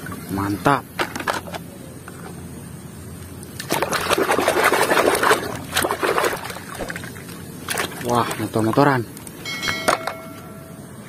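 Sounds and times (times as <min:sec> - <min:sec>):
water sloshing in a basin: 0:03.4 - 0:09.4.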